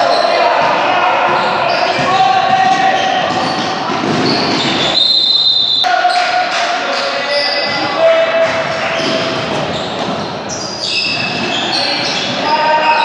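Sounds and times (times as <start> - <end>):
people shouting: 0.0 - 5.0
ball bouncing on wooden court: 0.6 - 5.0.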